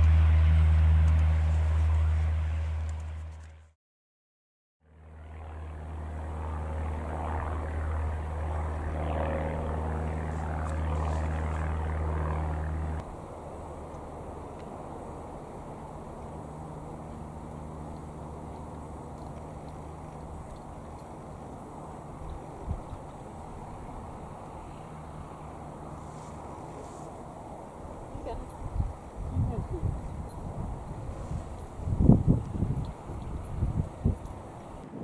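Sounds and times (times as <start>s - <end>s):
low engine drone: 0.0s - 3.8s, 4.8s - 35.0s
wind rumbling on microphone: 18.1s - 35.0s.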